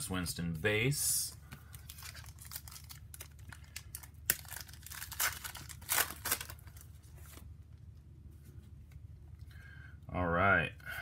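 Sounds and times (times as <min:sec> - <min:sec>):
foil wrapper tearing and crinkling: 0:01.8 - 0:06.8.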